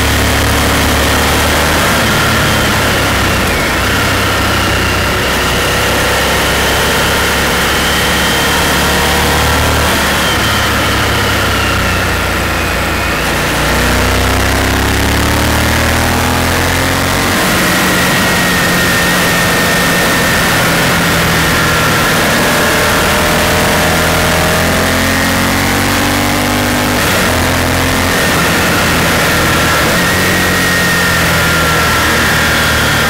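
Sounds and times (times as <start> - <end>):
motorcycle engine running: 0.0 - 33.0
wind noise: 25.5 - 33.0.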